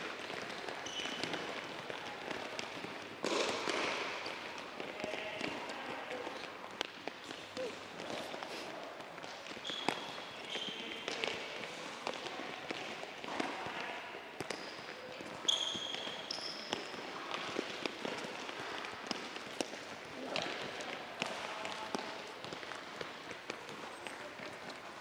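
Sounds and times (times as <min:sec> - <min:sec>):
balls dribbled on court floor: 0:00.0 - 0:25.0
shoes squeaking on floor: 0:00.2 - 0:03.5, 0:09.5 - 0:11.4, 0:14.4 - 0:18.2.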